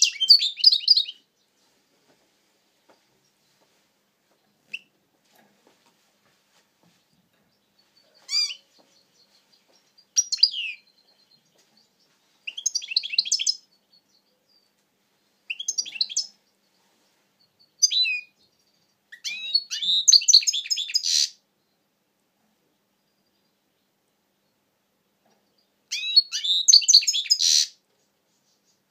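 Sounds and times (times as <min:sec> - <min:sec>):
goldfinch singing: 0:00.0 - 0:01.4, 0:07.5 - 0:14.7, 0:15.5 - 0:16.8, 0:17.4 - 0:21.4, 0:25.6 - 0:27.8.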